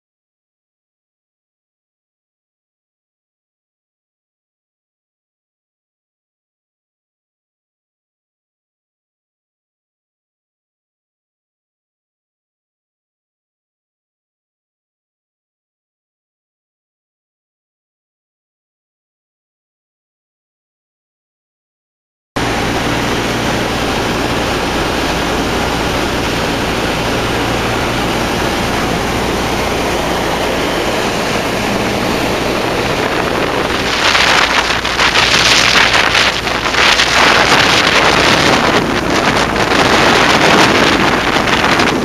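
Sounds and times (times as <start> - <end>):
aircraft piston engines droning: 22.4 - 42.0
wind noise on microphone: 22.4 - 42.0.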